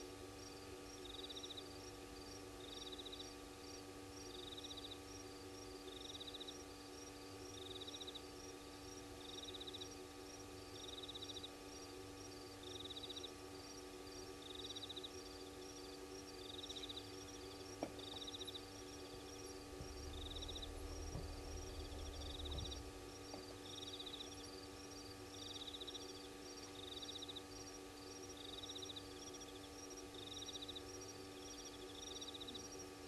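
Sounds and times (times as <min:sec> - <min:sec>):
insect pulsed chirp: 0:00.4 - 0:33.0
insect ticking chorus: 0:00.4 - 0:33.0
low hum: 0:16.4 - 0:26.1
low rumble: 0:19.6 - 0:23.4.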